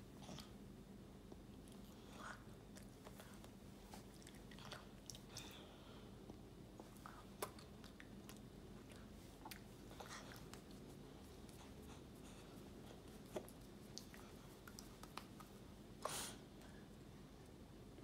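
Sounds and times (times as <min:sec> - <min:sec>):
low room hum: 0:00.0 - 0:18.0
child eating mouth sounds: 0:06.8 - 0:15.5.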